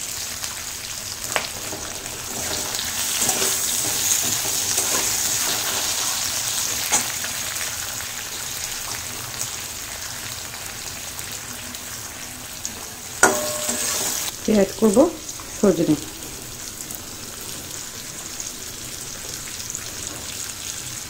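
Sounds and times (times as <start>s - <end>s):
potatoes sizzling in hot oil: 0.0s - 21.0s
metal spatula stirring: 1.6s - 7.2s, 13.2s - 14.3s.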